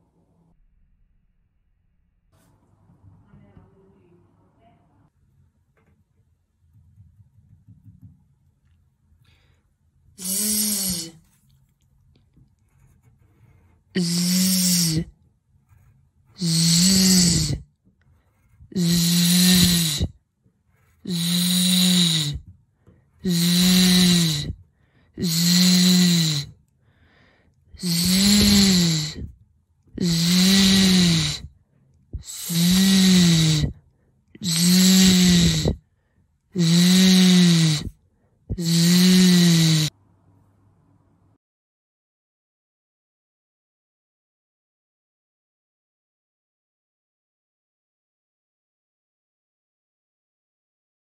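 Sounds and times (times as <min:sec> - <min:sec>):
woman making buzzing z sound: 0:10.2 - 0:11.2, 0:14.0 - 0:15.1, 0:16.4 - 0:17.6, 0:18.7 - 0:20.1, 0:21.1 - 0:22.4, 0:23.2 - 0:24.6, 0:25.2 - 0:26.6, 0:27.8 - 0:29.3, 0:30.0 - 0:31.5, 0:32.2 - 0:33.8, 0:34.4 - 0:35.8, 0:36.6 - 0:37.9, 0:38.5 - 0:39.9.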